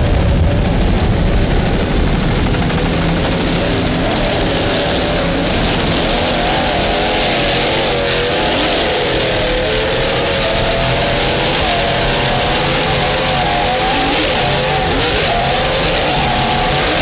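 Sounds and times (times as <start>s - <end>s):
powerboat engines at high revs: 0.0s - 17.0s
steady rushing noise: 0.0s - 17.0s.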